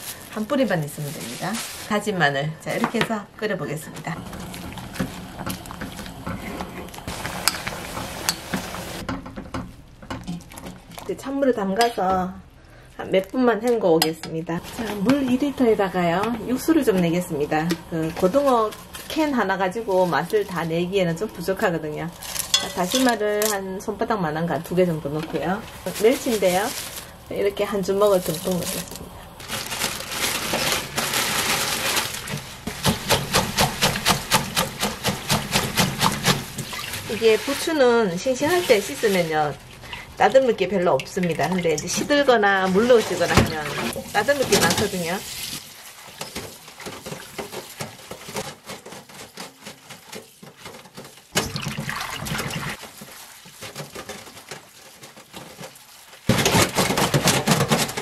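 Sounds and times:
water splashing: 51.3s - 56.3s
water rushing into metal bowl: 51.4s - 53.5s.

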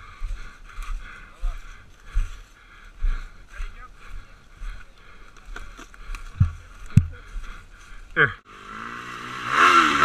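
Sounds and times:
branches rustling and cracking: 5.2s - 8.0s
heavy thumps: 6.3s - 7.3s.

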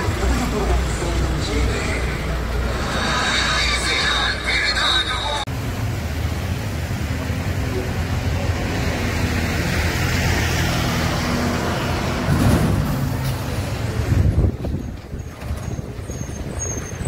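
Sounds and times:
diesel lorry driving past: 5.3s - 17.0s.

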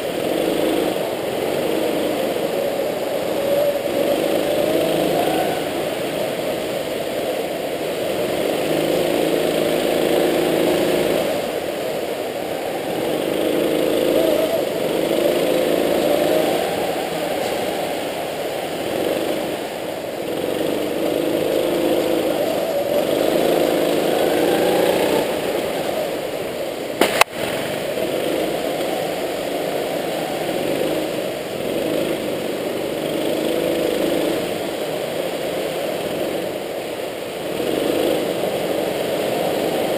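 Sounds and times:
go-kart engine revving: 0.0s - 39.9s
sharp knock: 27.0s - 27.4s.

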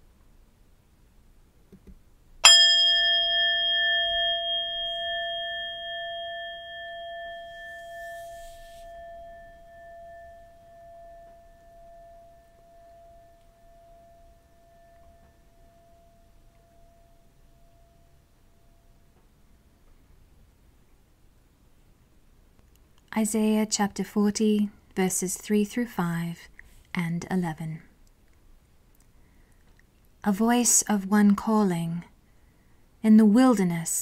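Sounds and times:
singing bowl ringing: 2.4s - 19.2s.

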